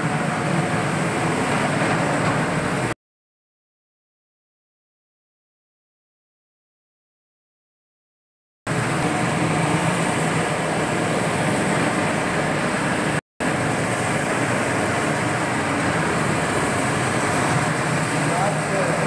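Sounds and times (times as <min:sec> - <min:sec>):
floor grinding machine running: 0:00.0 - 0:03.0, 0:08.7 - 0:19.0.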